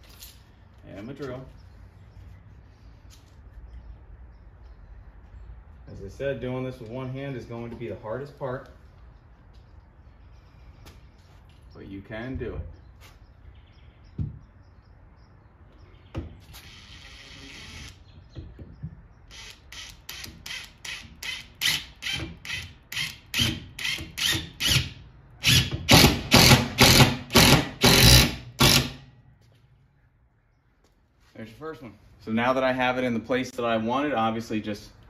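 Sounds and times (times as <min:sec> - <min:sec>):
cordless drill driving screw: 0:16.6 - 0:18.0, 0:19.3 - 0:29.0.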